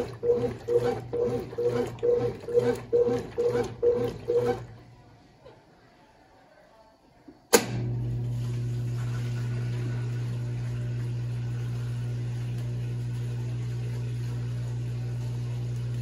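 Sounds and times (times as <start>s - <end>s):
drain pump humming: 7.7s - 16.0s.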